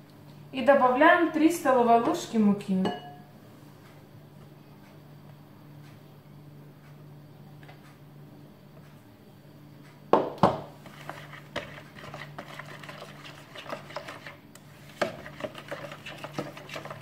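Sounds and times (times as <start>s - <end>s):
spoon knocking against bowl: 2.8s - 3.2s
spoon scraping plastic bowl: 10.8s - 17.0s.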